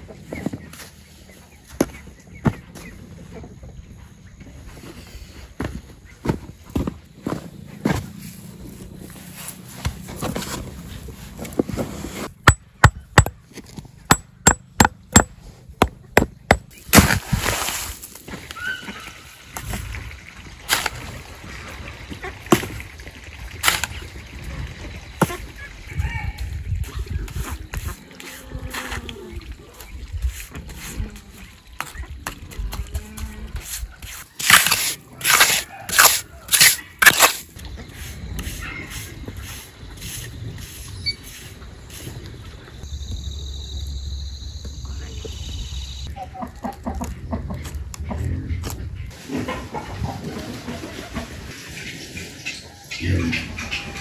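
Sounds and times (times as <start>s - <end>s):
hoe chopping wet mortar: 12.4s - 17.5s, 33.7s - 37.5s.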